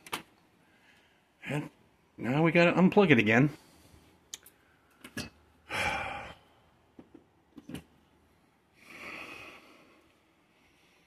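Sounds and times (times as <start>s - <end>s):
man exhaling hard: 5.7s - 6.5s.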